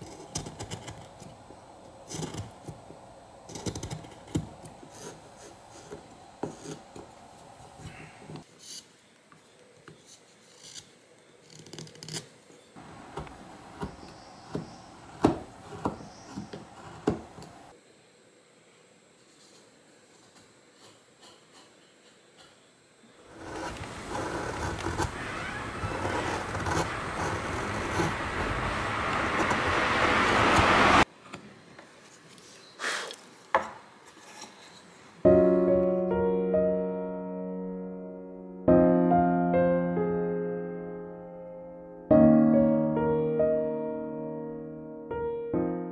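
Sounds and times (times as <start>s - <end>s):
chisel cutting wood: 0.0s - 1.3s, 3.5s - 7.1s, 10.5s - 17.7s, 23.3s - 31.0s
knife carving wood: 0.0s - 1.4s, 2.0s - 2.8s, 3.5s - 7.1s, 10.0s - 12.4s, 13.0s - 17.7s, 23.3s - 29.8s
soft electric piano music: 35.3s - 45.9s.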